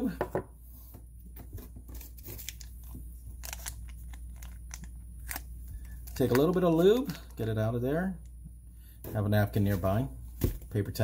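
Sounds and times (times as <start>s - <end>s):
steady low hum: 0.0s - 11.0s
packet clicks and crinkles: 3.4s - 7.4s.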